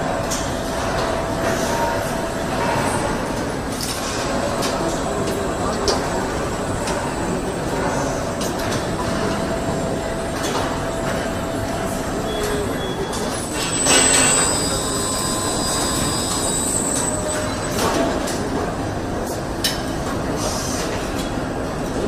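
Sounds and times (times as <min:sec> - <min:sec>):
assembly-line machinery whirring: 0:02.4 - 0:18.5
high metallic squeal: 0:12.3 - 0:18.0.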